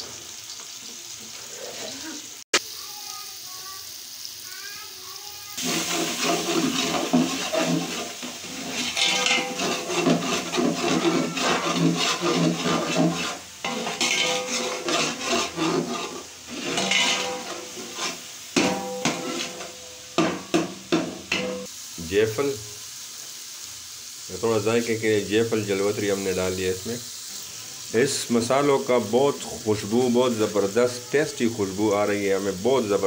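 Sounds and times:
loud sizzle and boil: 0.0 - 33.0
metal ladle scraping pot: 5.6 - 21.7.

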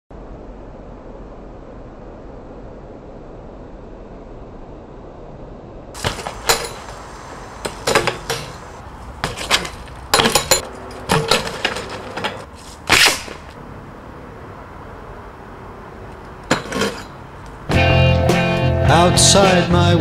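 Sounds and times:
bike clanking on concrete: 6.0 - 13.6, 16.2 - 17.2.

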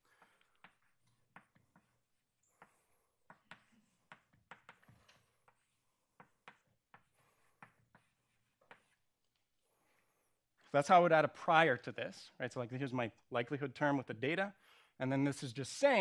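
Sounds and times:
chalk tapping and scratching blackboard: 0.0 - 10.2.

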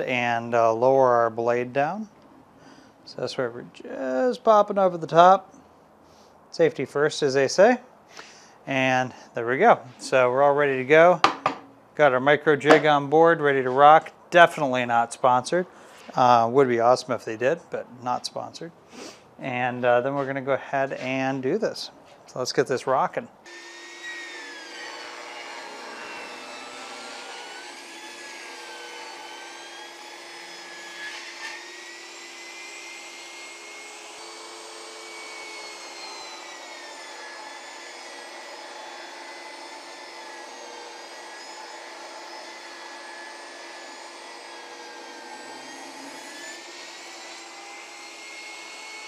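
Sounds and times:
table saw ripping a board: 23.5 - 49.0.

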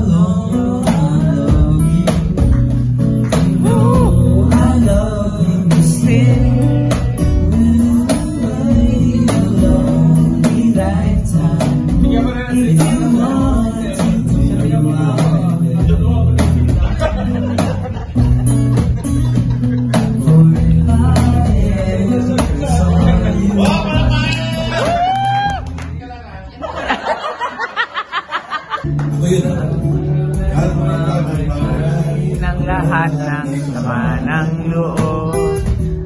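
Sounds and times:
boy singing into microphone: 0.0 - 2.5, 3.3 - 16.6, 20.0 - 25.4, 29.2 - 36.0
strummed acoustic guitar: 0.0 - 25.1, 28.8 - 36.0
cajon beat: 0.0 - 26.0, 27.7 - 36.0.

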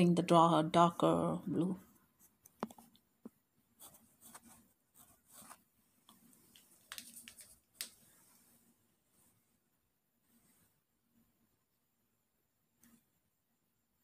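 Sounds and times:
paintbrush strokes on canvas: 3.8 - 11.0.

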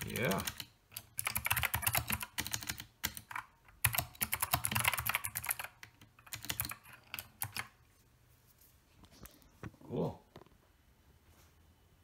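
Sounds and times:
mechanical keyboard typing: 0.0 - 7.8.

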